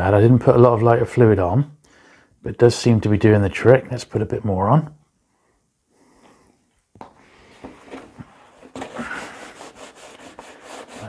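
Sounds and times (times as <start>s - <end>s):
paper towel rubbing cardboard: 8.7s - 11.0s.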